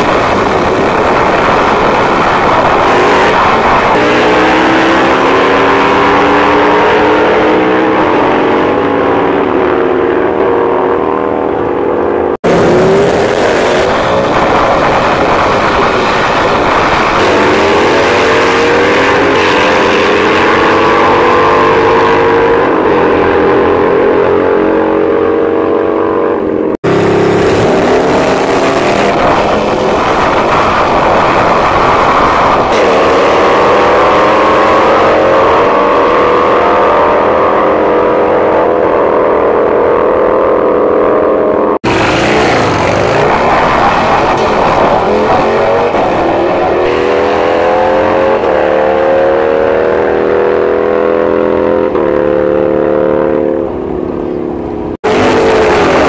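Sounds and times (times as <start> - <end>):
drag racing engines revving: 0.0 - 56.0.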